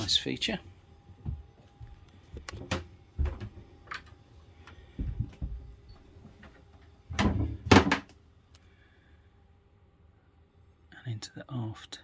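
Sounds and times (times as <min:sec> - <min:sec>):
knocks and clicks in wooden cabin: 0:01.0 - 0:08.3.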